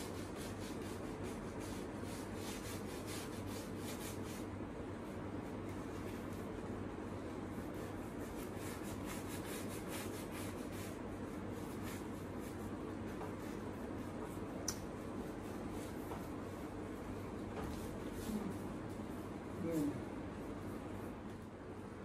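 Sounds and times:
paintbrush scrubbing on canvas: 0:00.0 - 0:21.2
low room hum: 0:00.0 - 0:22.0.

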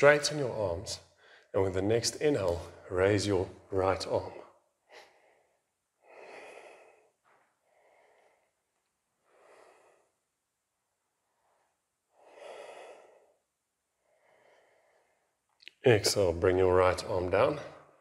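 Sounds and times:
man breathing slowly: 0:01.1 - 0:01.6, 0:04.2 - 0:15.6.

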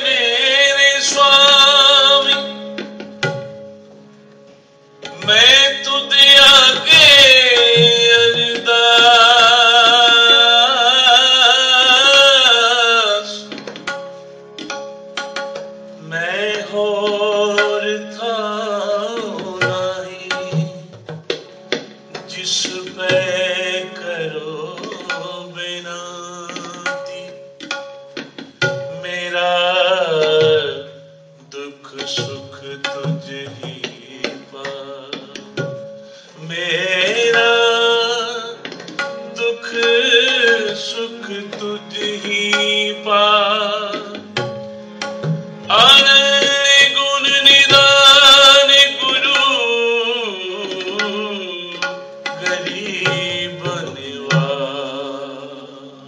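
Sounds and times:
men singing devotional song: 0:00.0 - 0:02.4, 0:05.2 - 0:13.4, 0:16.0 - 0:20.8, 0:22.3 - 0:26.8, 0:29.0 - 0:30.9, 0:31.6 - 0:35.5, 0:36.4 - 0:38.6, 0:39.4 - 0:44.2, 0:45.7 - 0:51.8, 0:52.4 - 0:56.0
tabla rhythm: 0:00.0 - 0:55.8
harmoniums: 0:00.0 - 0:56.0.

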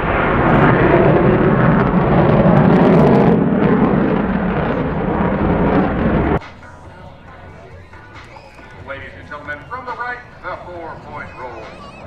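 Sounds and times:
jet engine crackling: 0:00.0 - 0:06.4, 0:08.1 - 0:12.0
jet engine in afterburner: 0:00.0 - 0:06.4, 0:09.7 - 0:12.0.

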